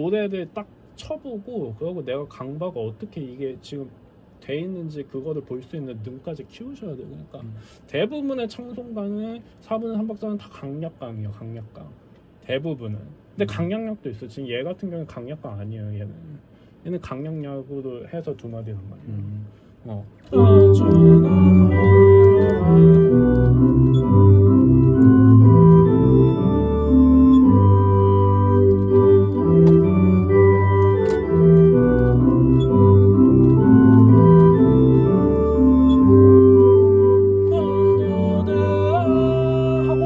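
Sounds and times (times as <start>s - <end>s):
organ playing hymn accompaniment: 20.3s - 40.0s.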